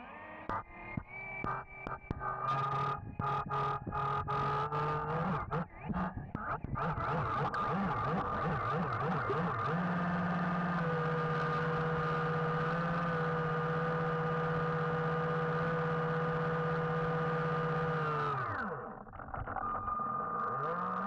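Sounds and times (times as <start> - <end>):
electric motor whine: 7.1 - 21.0.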